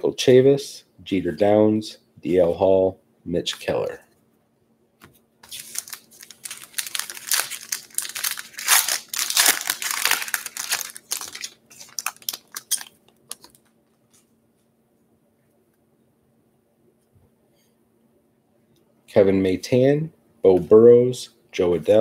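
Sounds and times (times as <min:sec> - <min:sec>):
foil wrapper tearing and crinkling: 0:05.4 - 0:13.6.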